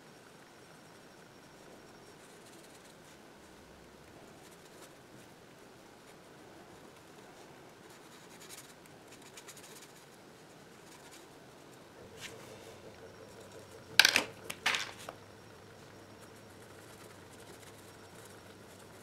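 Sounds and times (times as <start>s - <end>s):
plastic pens clacking: 14.0s - 15.2s.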